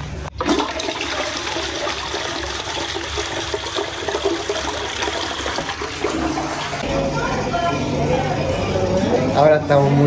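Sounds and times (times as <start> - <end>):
toilet flushing: 0.3 - 7.6.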